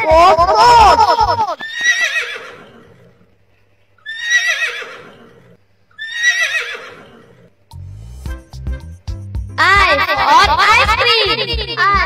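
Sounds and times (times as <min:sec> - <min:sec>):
horse whinnying: 0:00.0 - 0:03.4, 0:04.0 - 0:07.6.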